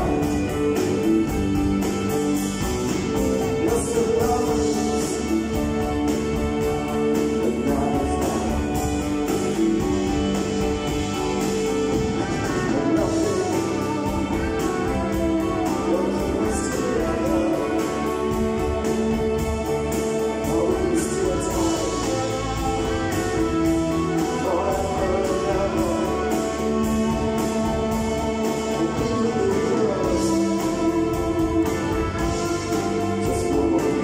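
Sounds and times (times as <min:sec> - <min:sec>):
man singing lead vocal: 0:00.0 - 0:02.1, 0:03.0 - 0:10.2, 0:12.1 - 0:34.0
drums: 0:00.0 - 0:34.0
electric guitars: 0:00.0 - 0:34.0
live rock band: 0:00.0 - 0:34.0.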